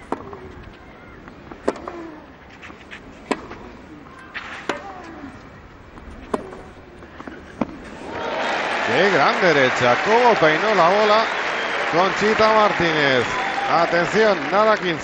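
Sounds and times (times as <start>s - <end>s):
tennis racket hitting ball: 1.6s - 2.1s, 3.2s - 3.7s, 4.4s - 5.1s, 6.2s - 7.8s.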